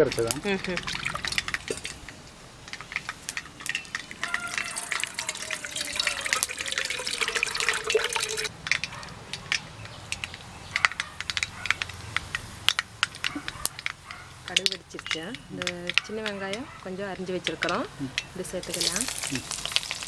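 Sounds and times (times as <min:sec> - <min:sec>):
seeds spluttering in hot oil: 0:00.0 - 0:10.6, 0:17.2 - 0:20.0
liquid splashing into a bowl: 0:03.6 - 0:08.5, 0:18.7 - 0:20.0.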